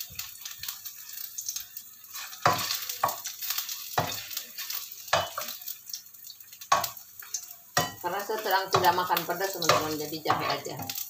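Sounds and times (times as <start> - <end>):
food sizzling in a pan: 0.0 - 11.0
metal spatula scraping pan: 2.1 - 5.6, 7.8 - 11.0.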